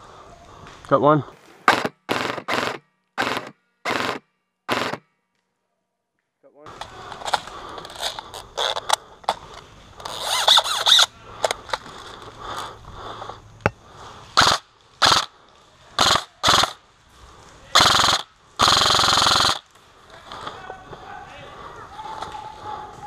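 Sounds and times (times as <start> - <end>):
airsoft rifle firing bursts: 1.6 - 5.0, 14.4 - 15.3, 16.0 - 16.8, 17.8 - 19.7.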